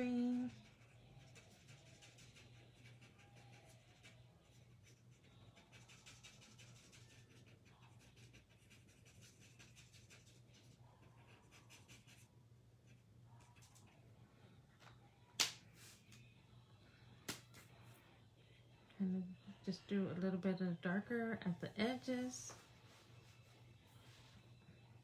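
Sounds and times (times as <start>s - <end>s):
low steady hum: 0.0s - 25.0s
marker scratching on paper: 0.5s - 12.3s.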